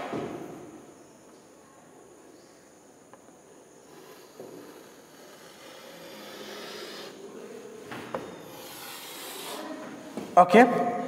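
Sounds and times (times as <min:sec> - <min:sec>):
chalk scraping on chalkboard: 0:03.8 - 0:07.2, 0:08.2 - 0:10.0
chalk tapping: 0:03.9 - 0:07.2, 0:08.1 - 0:09.8.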